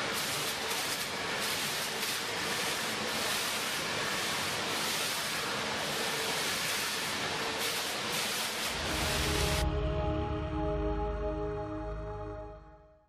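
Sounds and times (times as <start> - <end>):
music: 8.7 - 13.0.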